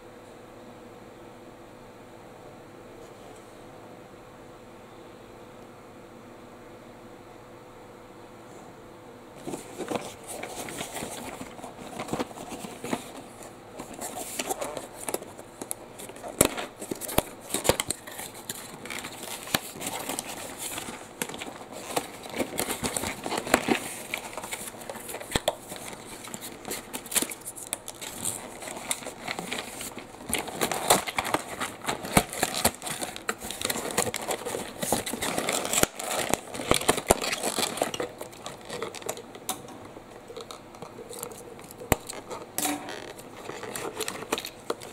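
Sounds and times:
cardboard packaging rustling: 9.4 - 39.4, 40.3 - 44.9.

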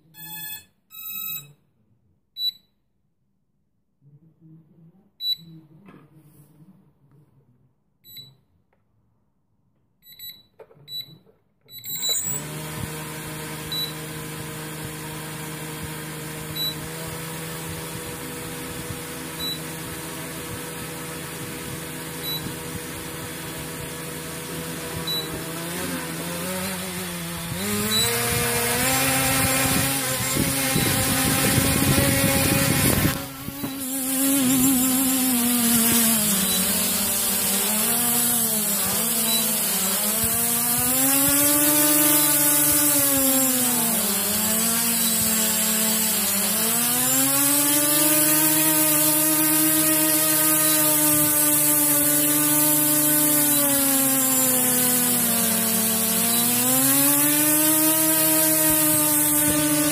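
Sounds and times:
short high beeps: 0.0 - 1.6, 8.0 - 8.4, 10.0 - 12.4, 16.6 - 16.8, 19.4 - 19.6, 22.2 - 22.5
quadcopter motors whirring: 11.8 - 59.9.

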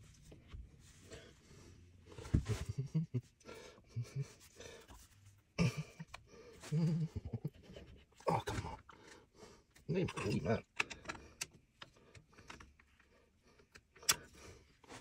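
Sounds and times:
heavy breathing: 3.4 - 5.1
person grunting: 8.2 - 8.8.

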